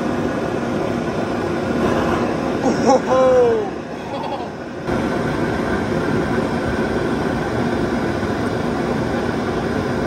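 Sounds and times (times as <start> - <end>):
faint steady whine: 0.0 - 10.0
jet engine rushing roar: 0.0 - 10.0.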